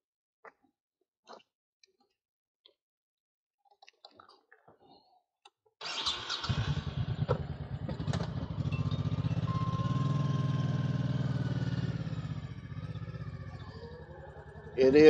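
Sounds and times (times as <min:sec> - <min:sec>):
motorcycle engine idling: 0:06.3 - 0:15.0.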